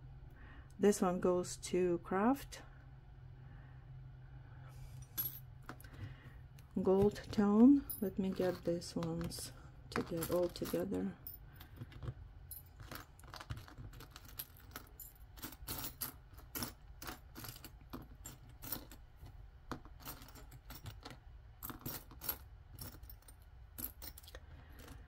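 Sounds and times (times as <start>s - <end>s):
metal rings clinking: 5.0s - 5.9s, 6.8s - 19.1s, 19.8s - 25.0s.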